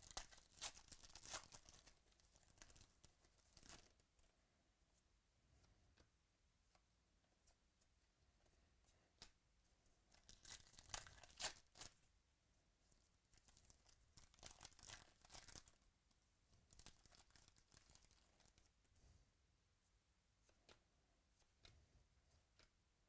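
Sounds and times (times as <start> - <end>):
foil wrapper tearing and crinkling: 0.0 - 1.9, 10.2 - 12.0, 13.6 - 15.8, 16.7 - 18.6
wrapper rustling: 0.0 - 4.0, 10.2 - 12.0, 13.3 - 15.8, 16.7 - 18.7.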